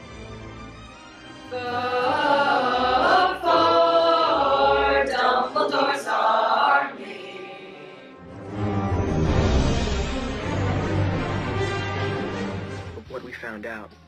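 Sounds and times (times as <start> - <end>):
group singing a cappella: 1.5 - 8.2.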